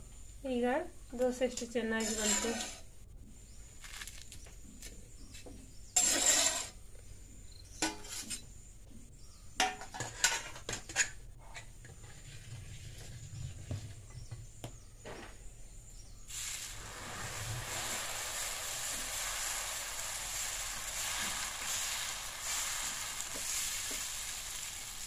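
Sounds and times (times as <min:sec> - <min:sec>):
spatula scraping a pan: 0:02.0 - 0:02.8, 0:06.0 - 0:06.8
steady hiss: 0:16.2 - 0:25.0.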